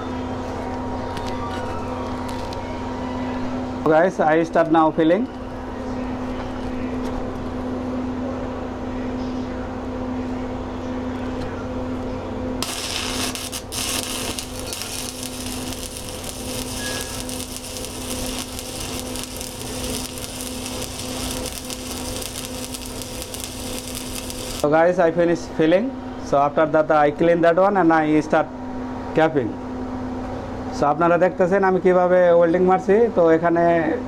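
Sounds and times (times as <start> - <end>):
steady low hum: 5.4 - 24.7
welding arc crackling and hissing: 12.6 - 24.7.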